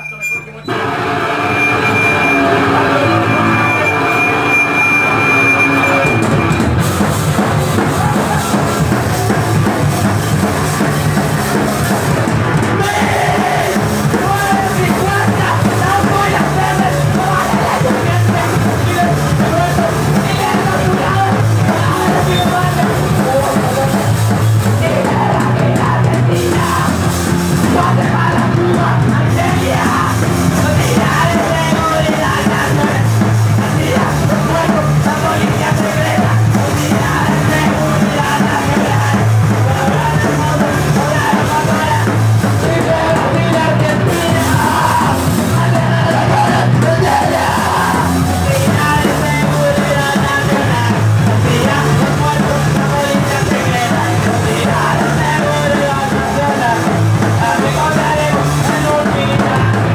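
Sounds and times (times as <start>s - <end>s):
punk band playing live: 0.0s - 59.9s
yelled vocals: 0.0s - 59.9s.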